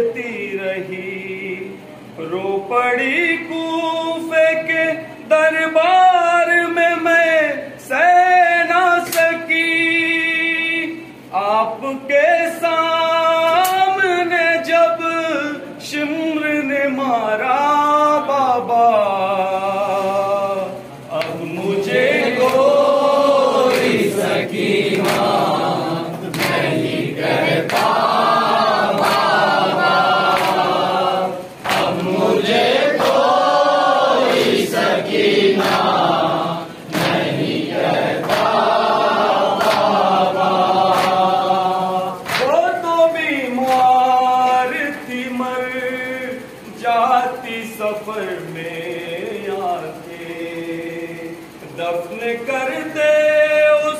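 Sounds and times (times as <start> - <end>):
man singing a lament: 0.0 - 24.6, 41.1 - 53.9
men chanting in chorus: 0.0 - 53.9
chest-beating slaps: 26.2 - 26.7, 31.6 - 32.2, 42.2 - 42.6.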